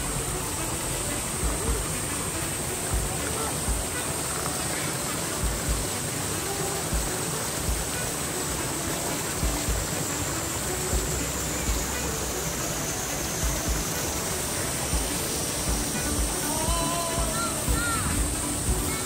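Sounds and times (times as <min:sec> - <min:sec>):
stream flowing over rocks: 0:00.0 - 0:19.0
low thumps: 0:13.4 - 0:14.2.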